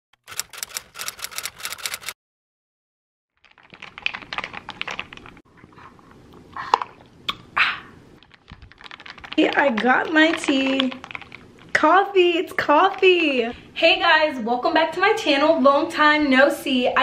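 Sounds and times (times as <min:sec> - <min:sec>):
ice cubes rattling in a cup: 0:03.4 - 0:05.4, 0:08.2 - 0:11.8.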